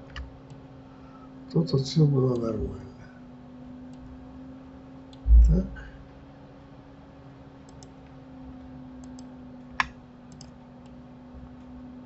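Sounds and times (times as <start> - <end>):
steady low hum: 0.0 - 12.0
computer mouse button clicking: 9.0 - 11.0.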